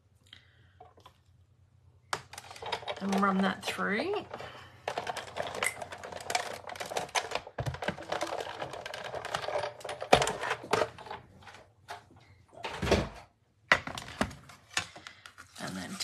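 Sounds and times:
hand-cranked machine clicking rattle: 0:04.9 - 0:10.7.

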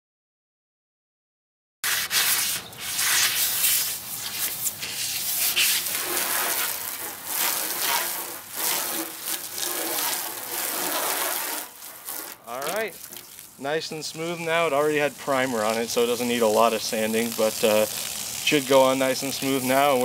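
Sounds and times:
sanding sponge scrubbing metal: 0:01.8 - 0:13.1, 0:13.8 - 0:20.0
hose water spraying: 0:01.8 - 0:20.0.

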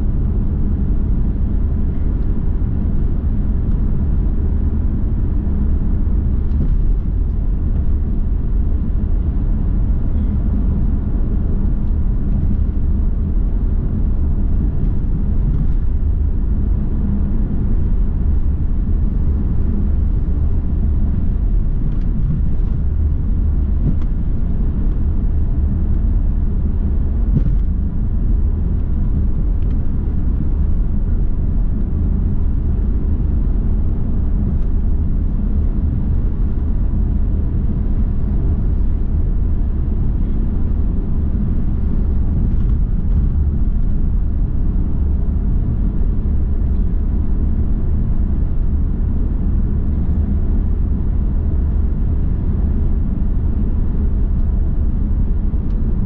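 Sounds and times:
car interior road rumble: 0:00.0 - 0:56.0.

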